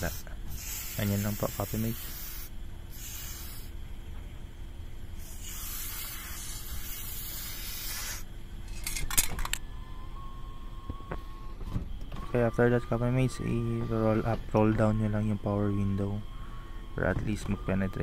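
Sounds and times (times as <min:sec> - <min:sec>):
aerosol spray hissing: 0:00.0 - 0:03.7, 0:05.2 - 0:08.3.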